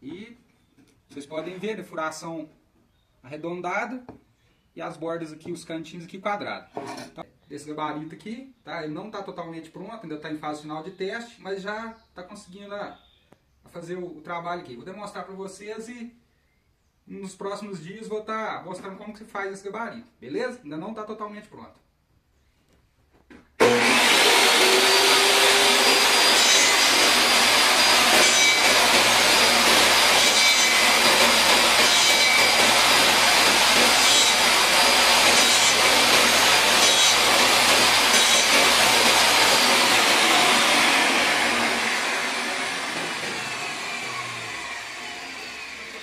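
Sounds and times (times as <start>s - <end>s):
saw cutting wood: 23.6s - 46.0s
saw winding down: 23.6s - 46.0s
table saw whine: 23.6s - 46.0s.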